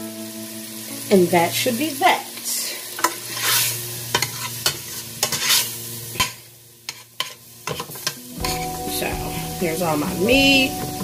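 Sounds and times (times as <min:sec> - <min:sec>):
food sizzling in oil: 0:00.0 - 0:11.0
metal spoon scraping pan: 0:03.0 - 0:08.8.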